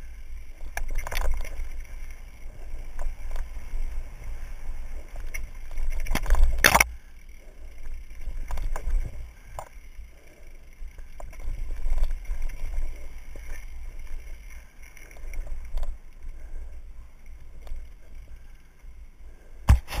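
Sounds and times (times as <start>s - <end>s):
bike rattling over bumps: 0.0s - 6.9s, 7.5s - 9.7s, 10.9s - 16.1s
bike tyre noise: 0.0s - 20.0s.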